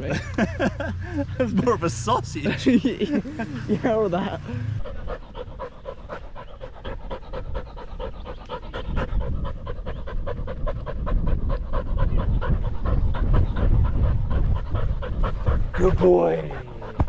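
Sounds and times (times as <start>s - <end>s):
dog panting rapidly: 3.8s - 17.0s.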